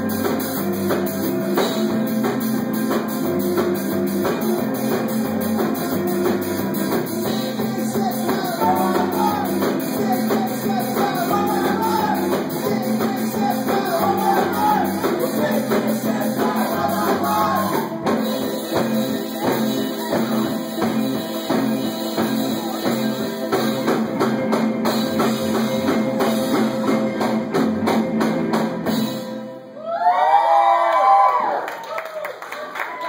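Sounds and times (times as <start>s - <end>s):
live rock band playing: 0.0s - 30.2s
man singing: 7.0s - 23.9s.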